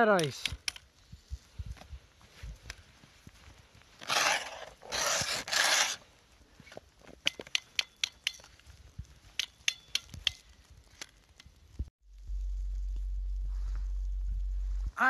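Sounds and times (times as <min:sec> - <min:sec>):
sharp clicks and taps on ice: 0:00.2 - 0:00.9, 0:06.8 - 0:11.9
snowshoes scraping on snow and ice: 0:01.1 - 0:06.9.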